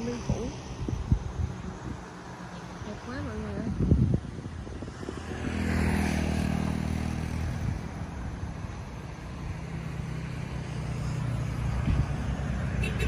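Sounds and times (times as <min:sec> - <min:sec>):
road noise hiss: 0:00.0 - 0:13.0
vehicle passing by: 0:00.0 - 0:13.0.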